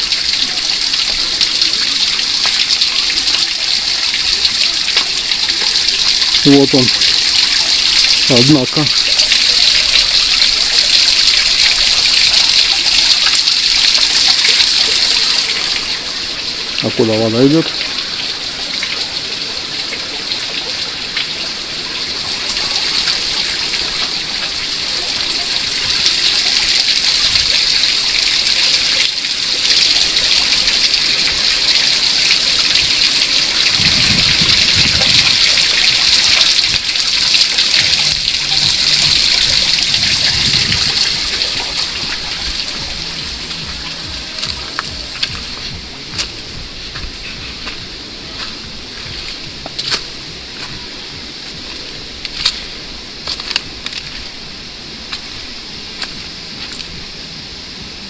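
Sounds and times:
waterfall and stream rushing: 0.0 - 58.0.

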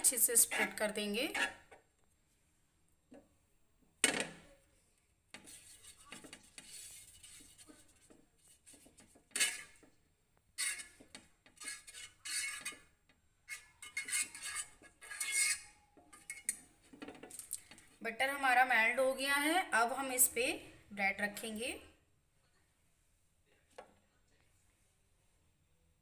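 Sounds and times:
utensil scraping a hot pan: 5.4 - 10.0, 10.6 - 16.9.

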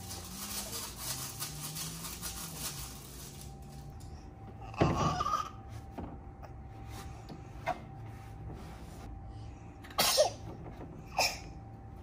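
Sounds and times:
baby sneezing: 10.0 - 10.4, 11.2 - 11.5.

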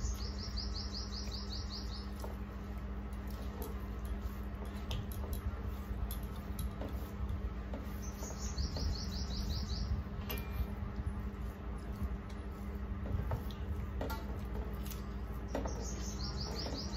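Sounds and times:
bird chirping: 0.0 - 2.4, 7.9 - 10.0, 15.5 - 16.9
steady low hum: 0.0 - 16.9
hands squishing rice: 2.0 - 8.3.

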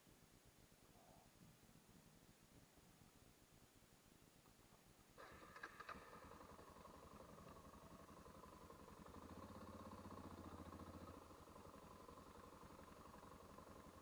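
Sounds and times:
motorbike engine low throb: 5.9 - 14.0.

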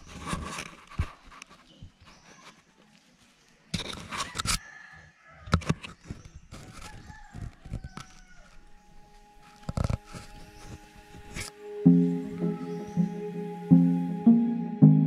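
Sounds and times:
hands rubbing on camera microphone: 0.0 - 4.6, 5.7 - 11.6.

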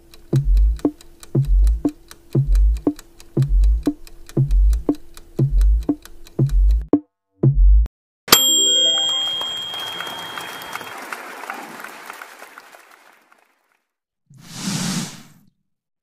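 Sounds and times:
ticking clicks: 0.0 - 7.0
electronic beat of low thumps: 0.3 - 7.9
bright ringing chime: 8.3 - 11.2.

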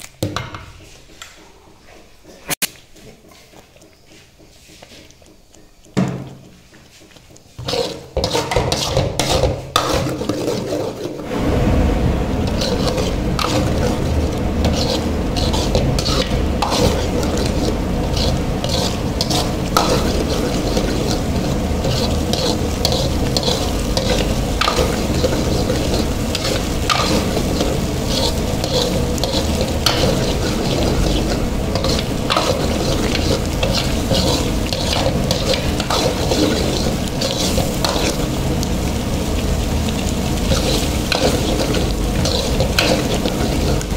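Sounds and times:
gravy sizzling: 2.2 - 43.9
spoon scraping and clinking pan: 7.6 - 11.2, 12.5 - 38.3.

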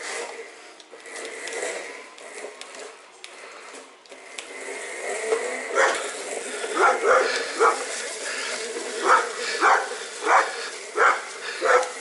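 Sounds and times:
dog barking: 5.8 - 6.0, 6.8 - 7.9, 9.0 - 12.0.

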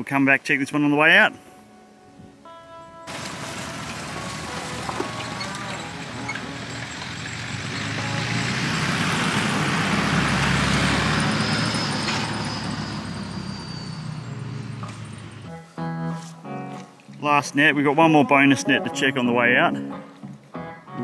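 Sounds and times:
vehicle driving past on dirt: 3.1 - 15.6.

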